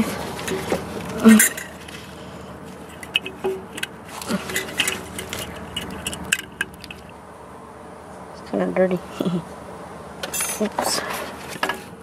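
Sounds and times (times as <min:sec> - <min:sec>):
metal tool clinking on engine parts: 0:00.4 - 0:01.9, 0:02.8 - 0:07.1.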